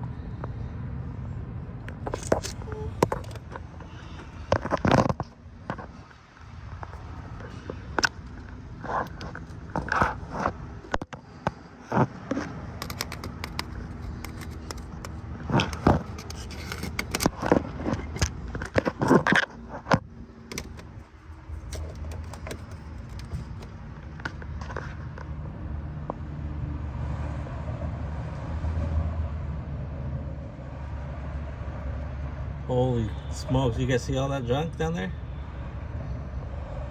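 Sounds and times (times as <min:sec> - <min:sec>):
tool scraping on engine: 0:02.0 - 0:25.2.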